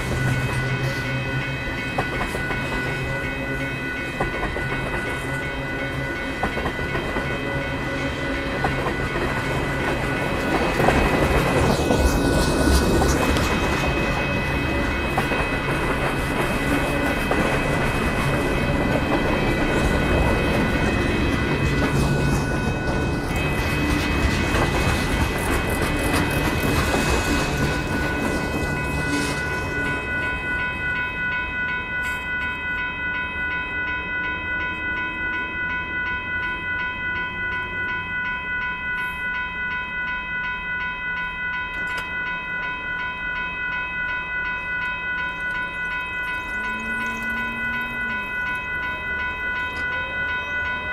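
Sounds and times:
freight train rolling past: 0:00.0 - 0:31.9
railroad crossing bell ringing: 0:00.0 - 0:50.9.

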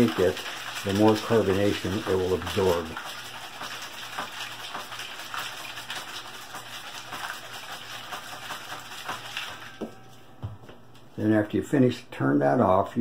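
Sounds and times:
water sloshing in plastic bottle: 0:00.0 - 0:10.0.

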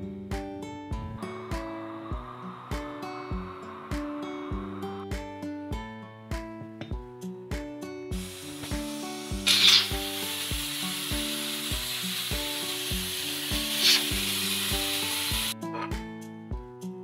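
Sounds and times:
background music with a beat: 0:00.0 - 0:17.0
food sizzling in a pot: 0:01.2 - 0:05.0, 0:08.1 - 0:15.6.

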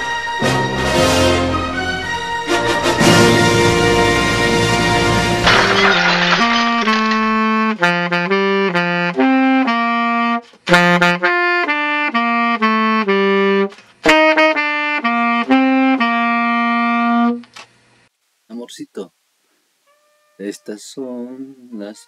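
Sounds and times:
saxophone slow melody: 0:07.6 - 0:17.4, 0:19.8 - 0:20.8.

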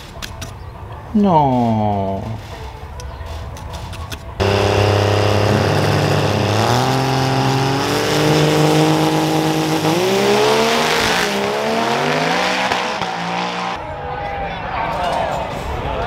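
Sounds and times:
diesel pickup engine accelerating: 0:04.4 - 0:13.8.

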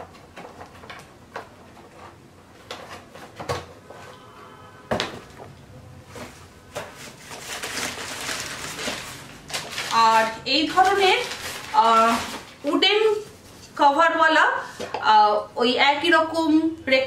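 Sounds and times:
packaging rustling: 0:06.1 - 0:13.8.

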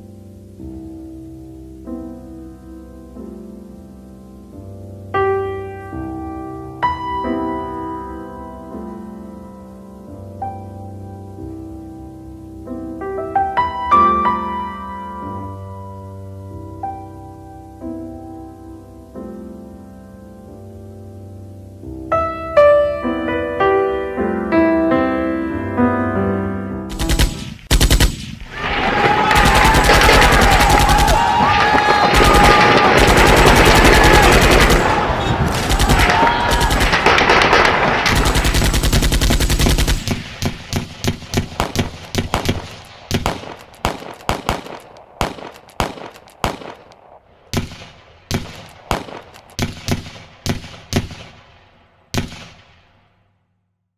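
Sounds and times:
rapid automatic gunfire: 0:26.9 - 0:28.5, 0:29.3 - 0:46.9, 0:47.5 - 0:51.5, 0:52.1 - 0:52.8
gunshots: 0:26.9 - 0:53.1.

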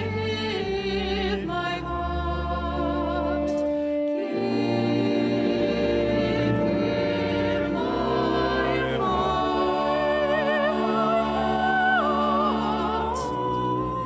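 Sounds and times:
slow classical carol music: 0:00.0 - 0:14.0.

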